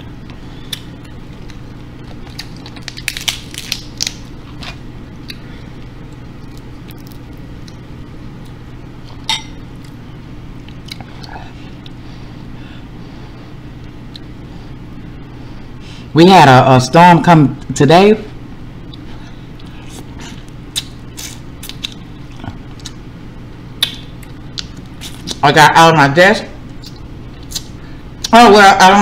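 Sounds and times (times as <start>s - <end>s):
steady low hum: 0.0s - 29.0s
crab shells cracking by hand: 2.2s - 4.3s, 20.7s - 22.0s.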